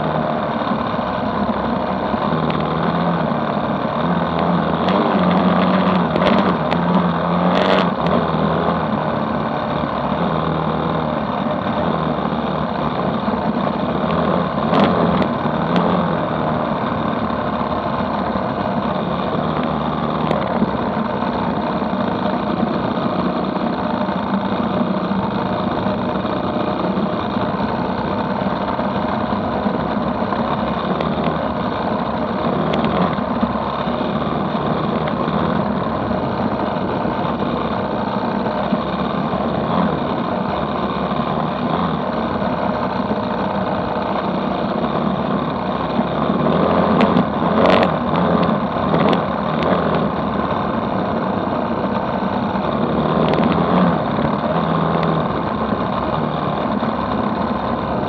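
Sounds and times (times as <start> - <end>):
dirt bike engine running: 0.0 - 58.0.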